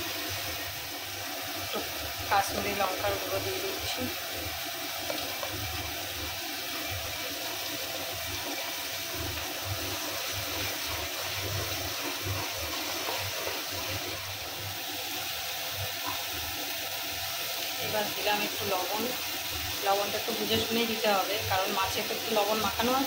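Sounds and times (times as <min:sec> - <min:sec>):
paste sizzling in hot oil: 0:00.0 - 0:23.0.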